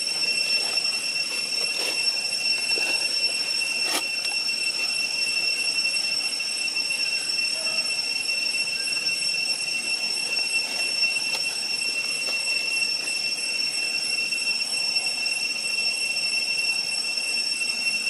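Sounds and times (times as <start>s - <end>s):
cicadas droning: 0.0s - 18.0s.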